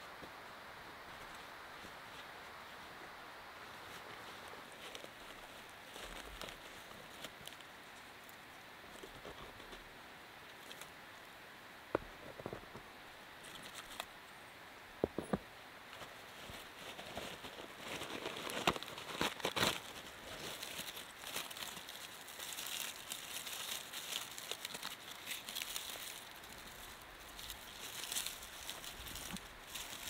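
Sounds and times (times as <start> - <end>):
hands crumpling dry tinder: 3.8 - 7.7, 16.3 - 30.0.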